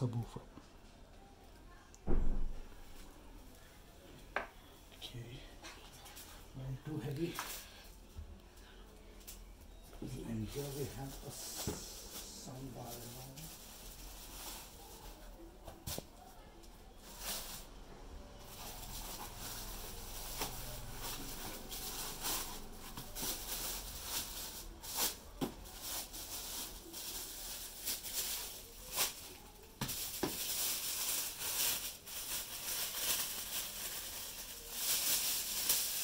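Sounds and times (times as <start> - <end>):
plastic wrapping rustling: 5.9 - 7.9, 9.0 - 17.8, 18.4 - 36.0.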